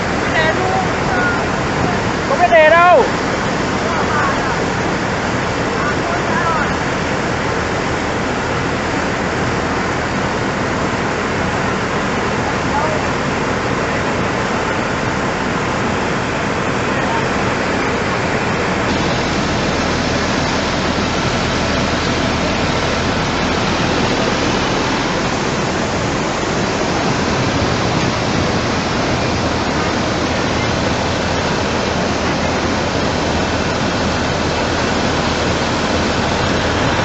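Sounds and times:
floodwater rushing: 0:00.0 - 0:37.0.

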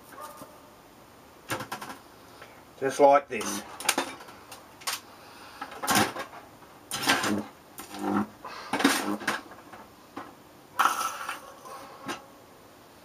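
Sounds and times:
electric arc crackling buzz: 0:02.8 - 0:05.0, 0:05.8 - 0:09.8.

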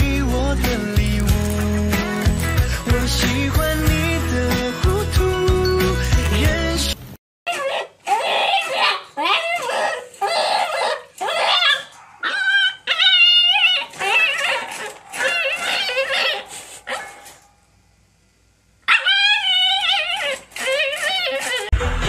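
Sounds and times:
puppy whining and yowling: 0:07.5 - 0:17.4, 0:18.9 - 0:21.7.

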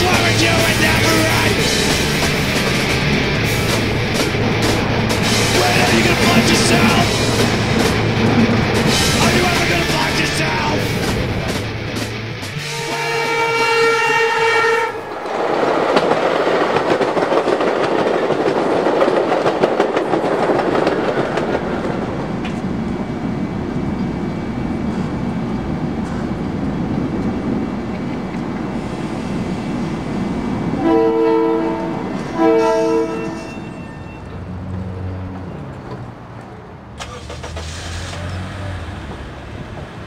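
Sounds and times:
passing train: 0:00.0 - 0:40.0
train horn: 0:12.6 - 0:15.1, 0:30.8 - 0:34.3.

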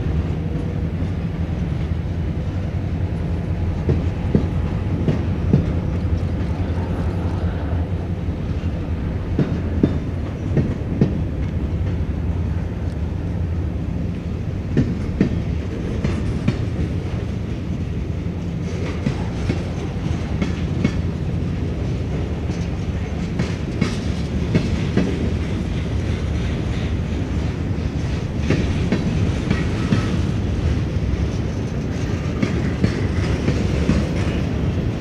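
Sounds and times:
freight train rumbling past: 0:00.0 - 0:35.0
wheels clicking over rail joints: 0:18.5 - 0:34.9.

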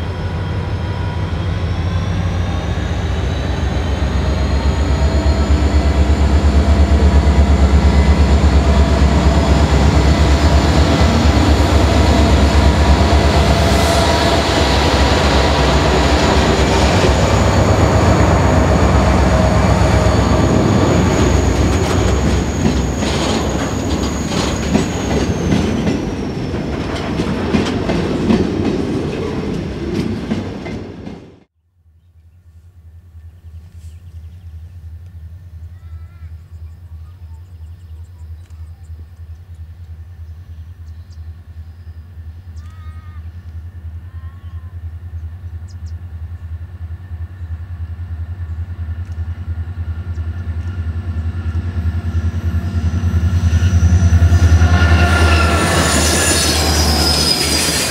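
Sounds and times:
diesel locomotive engine drone: 0:00.0 - 0:31.6, 0:32.5 - 0:57.9
high wheel squeal: 0:16.2 - 0:26.5, 0:52.5 - 0:57.9.

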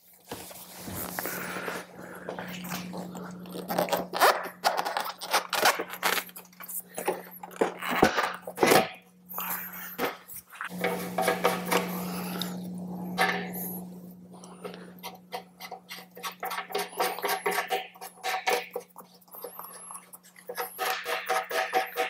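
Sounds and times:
steady hum: 0:00.2 - 0:18.5.

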